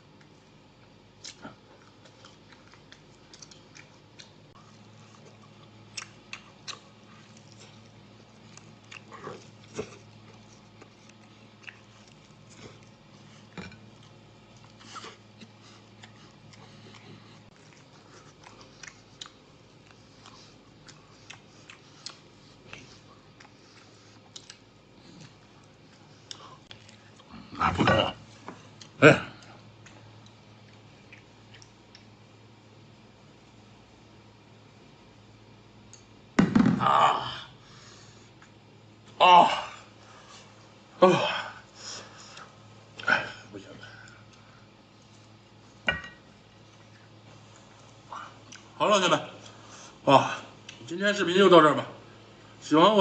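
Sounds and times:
person chewing meat: 0.0 - 27.5, 28.6 - 32.5, 44.0 - 48.8, 49.4 - 50.9.

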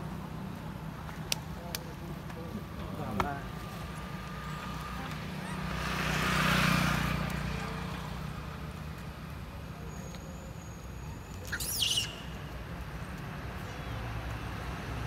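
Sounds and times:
vehicle passing: 3.4 - 9.5.

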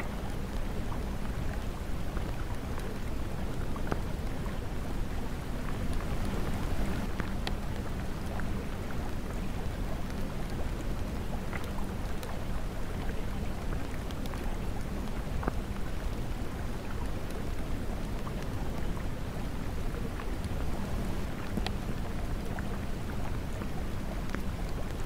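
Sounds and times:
steady rain hiss: 0.0 - 25.0
raindrop ticks: 5.7 - 12.4, 21.3 - 25.0.

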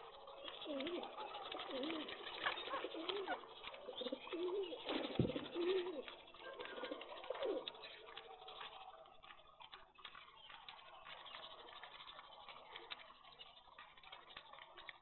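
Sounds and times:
pigeons cooing: 0.0 - 8.8
birds pecking grain on concrete: 0.0 - 15.0.

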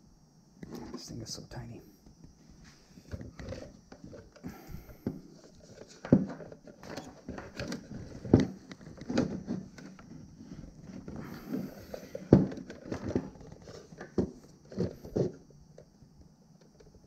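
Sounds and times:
plastic parts clicking and knocking: 3.1 - 16.0.

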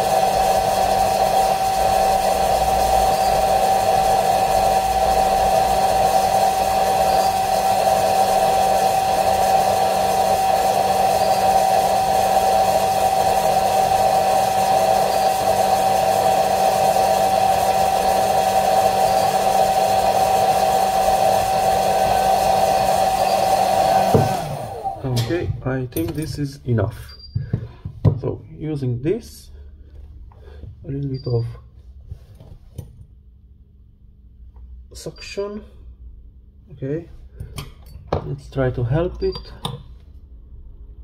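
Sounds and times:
hair dryer blowing: 0.0 - 25.5.

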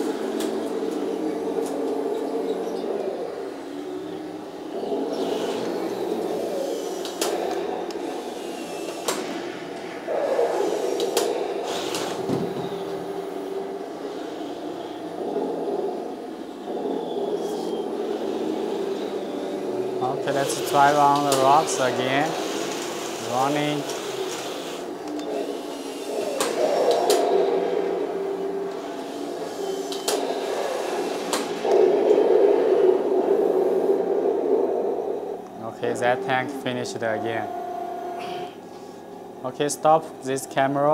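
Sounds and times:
simulated engine sound from speaker: 17.4 - 22.5, 23.2 - 24.0, 35.6 - 38.3.

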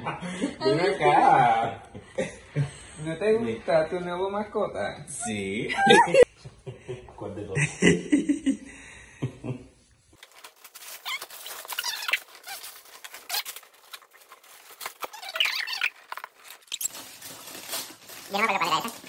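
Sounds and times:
wrapping paper tearing and crumpling: 10.2 - 19.0.

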